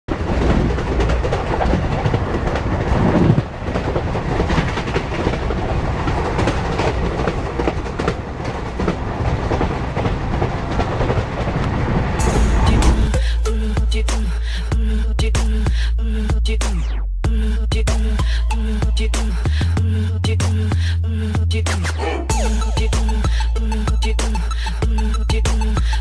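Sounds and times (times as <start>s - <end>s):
wheels clickety-clack over rails: 0.1s - 13.3s
train running noise: 0.1s - 15.8s.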